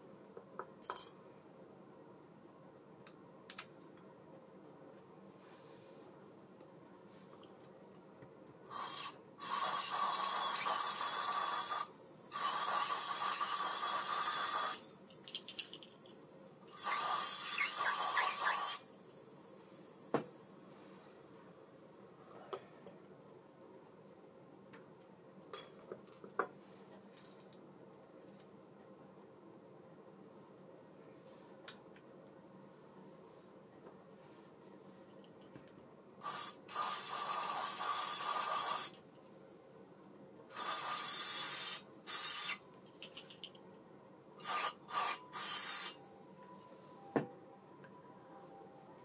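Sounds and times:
small metal parts clicking: 0:15.1 - 0:16.2
aerosol spray hissing: 0:36.2 - 0:38.9.

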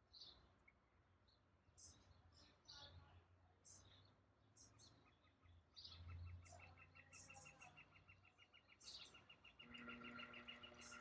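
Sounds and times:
faint birds chirping: 0:00.0 - 0:11.0.

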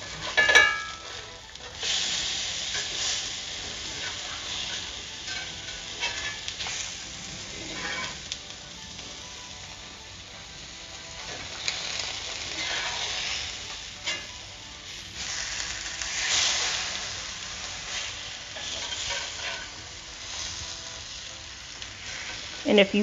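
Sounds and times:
plantain sizzling in oil: 0:00.0 - 0:23.0
metal spatula scraping pan: 0:03.8 - 0:06.8, 0:07.5 - 0:08.3, 0:12.4 - 0:14.4, 0:18.5 - 0:19.8.

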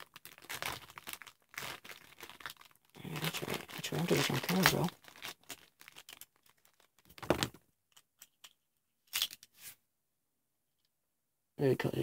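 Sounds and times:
packaging crinkling and tearing: 0:00.0 - 0:07.6.

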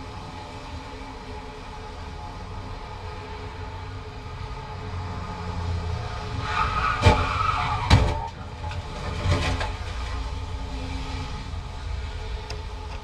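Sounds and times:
low traffic rumble: 0:00.0 - 0:13.0
cars colliding: 0:06.4 - 0:10.6
small clatter: 0:07.9 - 0:10.3.

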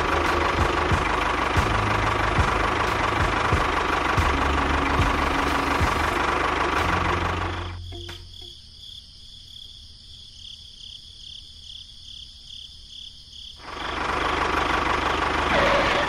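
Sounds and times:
engine knocking rumble: 0:00.0 - 0:08.1, 0:13.6 - 0:16.0
high cricket-like chirping: 0:07.1 - 0:14.3.

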